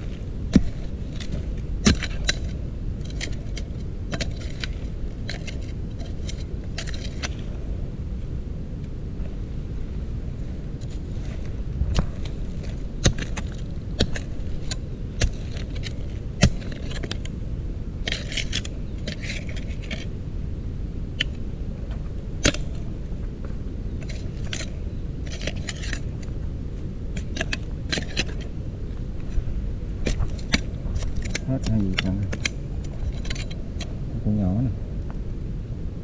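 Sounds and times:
metal tool digging in earth: 0:00.0 - 0:07.6, 0:10.8 - 0:17.4, 0:18.0 - 0:20.2, 0:21.2 - 0:21.4, 0:22.4 - 0:23.0, 0:24.0 - 0:26.4, 0:27.1 - 0:29.4, 0:30.0 - 0:34.0
wind and microphone handling: 0:00.0 - 0:36.0.

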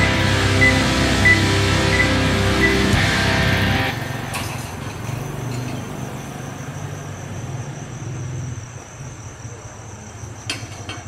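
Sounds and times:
vehicle engine idling: 0:00.0 - 0:05.2
high-pitched insect trill: 0:04.0 - 0:10.7.

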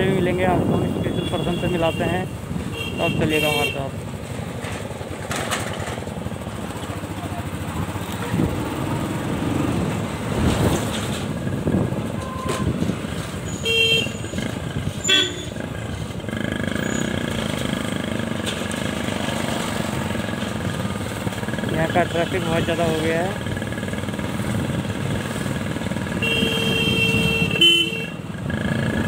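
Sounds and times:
wind and road noise: 0:00.0 - 0:29.0
vehicle horn toots: 0:00.7 - 0:03.9, 0:13.5 - 0:14.3, 0:15.0 - 0:15.6, 0:26.2 - 0:28.2
motorcycle engine running: 0:04.0 - 0:10.6, 0:14.2 - 0:29.0.

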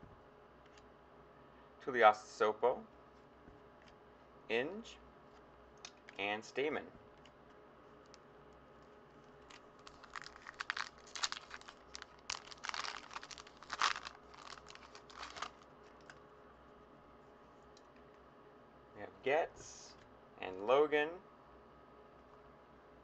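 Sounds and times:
foil wrapper tearing and crinkling: 0:09.4 - 0:16.2.

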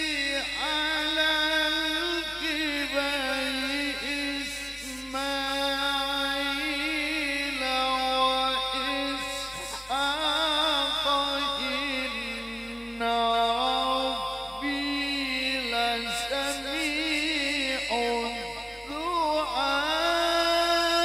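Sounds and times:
man reciting melodically: 0:00.0 - 0:21.0.

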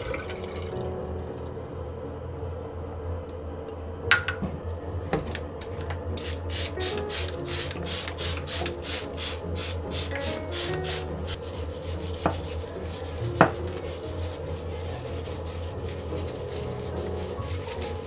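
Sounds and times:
sponge scrubbing ceramic basin: 0:09.9 - 0:18.0.

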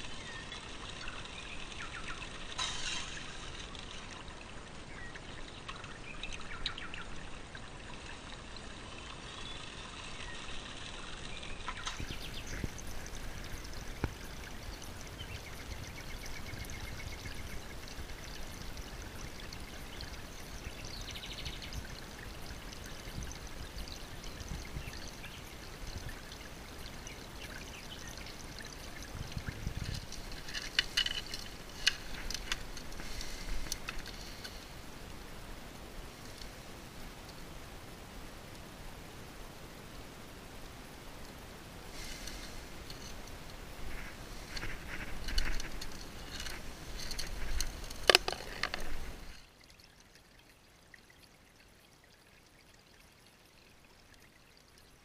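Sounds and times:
water rushing through sluice: 0:00.0 - 0:55.0
sharp clicks and knocks: 0:44.6 - 0:49.0.

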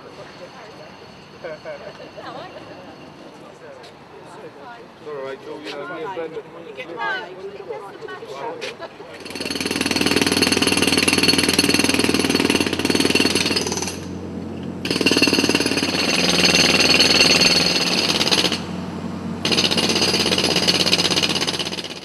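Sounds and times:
jackhammer hammering: 0:09.2 - 0:22.0.

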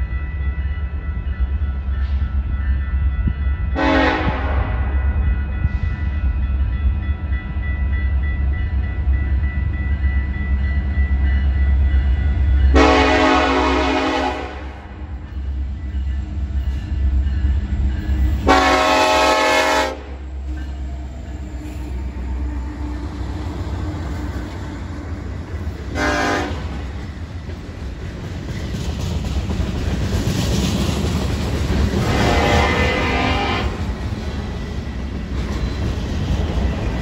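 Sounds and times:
freight train rumbling past: 0:00.0 - 0:37.0
locomotive horn blasts: 0:03.8 - 0:04.9, 0:12.7 - 0:14.9, 0:18.4 - 0:20.2, 0:25.9 - 0:26.8, 0:32.0 - 0:33.8
wheels clicking over rail joints: 0:26.6 - 0:32.1.

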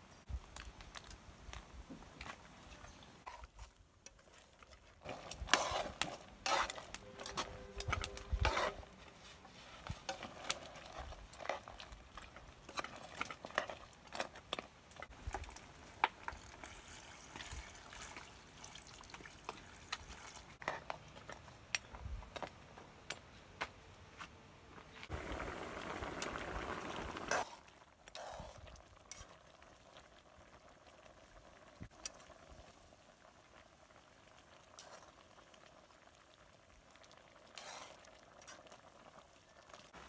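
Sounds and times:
spoon scraping metal pot: 0:05.0 - 0:09.0.

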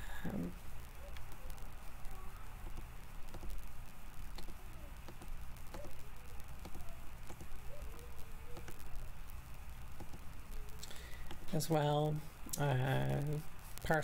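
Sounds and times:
steady low hum: 0:00.0 - 0:14.0
computer mouse clicking: 0:01.0 - 0:01.6, 0:02.6 - 0:03.6, 0:04.3 - 0:08.9, 0:10.0 - 0:10.3.

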